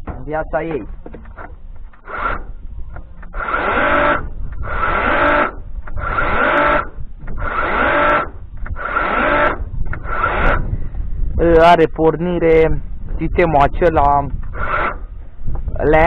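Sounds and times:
electric chainsaw whining in bursts: 2.0 - 2.5, 3.3 - 10.7, 14.5 - 15.1.

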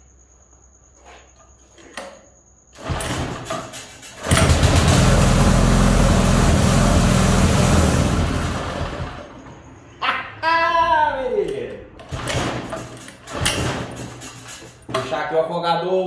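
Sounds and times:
boat engine cranking and running: 2.8 - 9.3.

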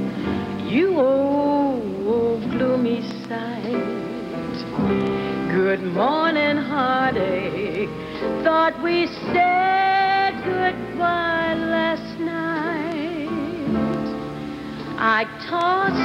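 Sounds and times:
grand piano: 0.0 - 16.0
woman singing jazz ballad: 0.0 - 16.0.

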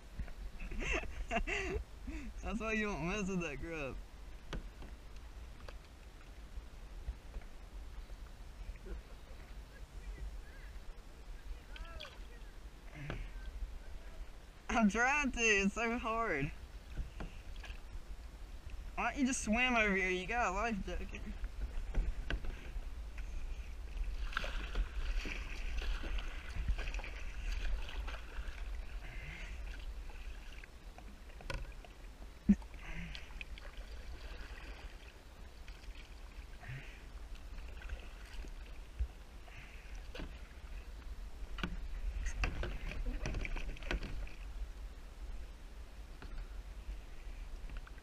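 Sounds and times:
paddle splashing in water: 8.6 - 14.4, 15.0 - 18.1, 21.0 - 48.0.

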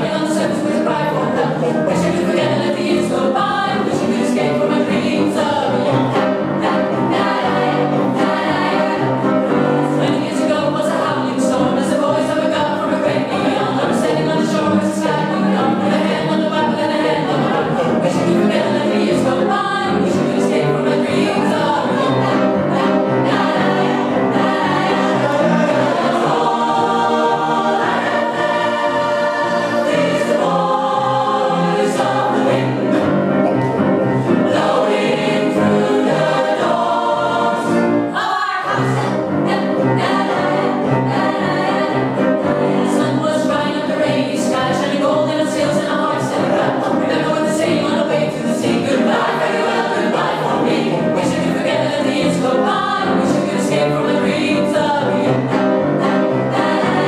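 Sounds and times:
mixed choir singing: 0.0 - 57.0.

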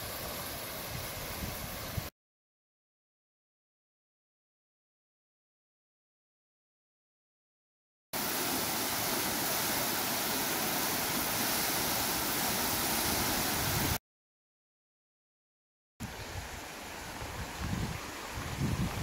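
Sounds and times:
waterfall rushing: 8.2 - 14.0.

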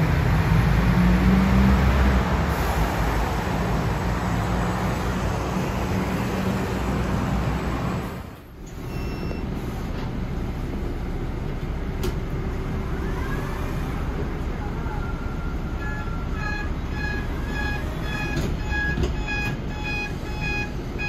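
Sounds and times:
bus cabin road and motor noise: 0.0 - 21.0
electric bus pulling in: 0.0 - 21.0
road traffic noise: 0.0 - 21.0
short beep: 8.8 - 9.5, 15.8 - 21.0.

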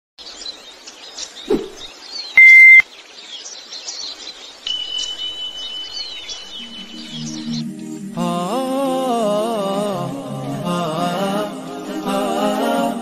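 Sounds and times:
birds chirping: 0.2 - 8.0
electronic beep: 2.4 - 2.8, 4.7 - 7.6
thin high tone: 2.4 - 2.8.

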